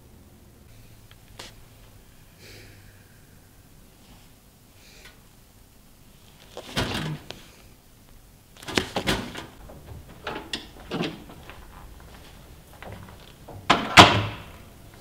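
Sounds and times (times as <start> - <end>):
thumps and knocks: 8.6 - 15.0
door handle and latch clicks: 8.7 - 14.7.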